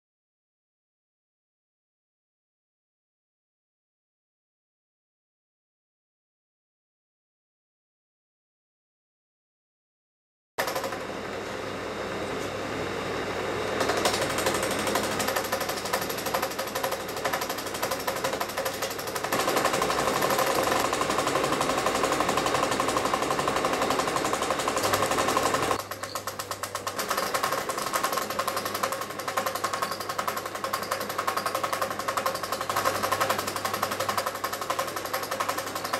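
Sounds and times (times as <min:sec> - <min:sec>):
film projector clattering: 0:10.6 - 0:11.2, 0:13.8 - 0:35.9.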